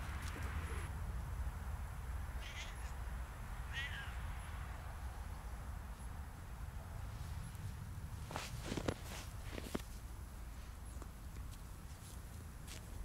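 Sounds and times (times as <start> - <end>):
steady low rumble: 0.0 - 13.0
cat meowing: 2.4 - 3.0, 3.7 - 4.2.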